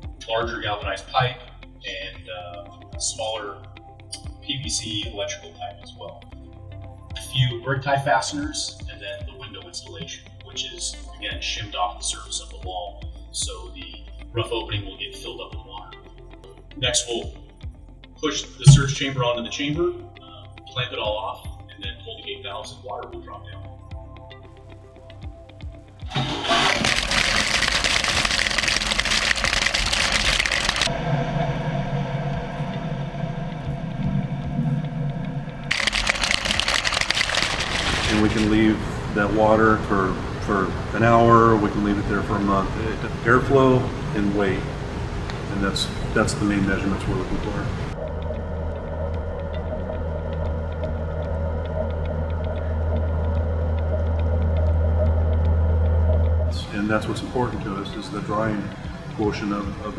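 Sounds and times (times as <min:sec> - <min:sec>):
low machine hum: 0:26.0 - 0:59.9
water rushing into tank: 0:26.1 - 0:30.9, 0:35.7 - 0:40.6.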